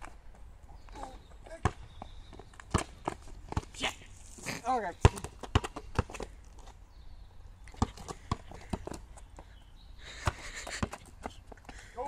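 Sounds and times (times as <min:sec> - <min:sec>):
basketball bouncing on tarmac: 0:01.6 - 0:03.8, 0:04.9 - 0:06.4, 0:07.7 - 0:09.5, 0:10.2 - 0:11.8.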